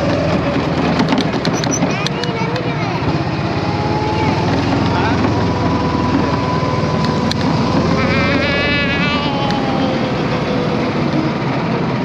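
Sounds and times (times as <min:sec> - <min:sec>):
go-kart engine whine: 0:00.0 - 0:12.0
warbling high sound: 0:08.0 - 0:10.4.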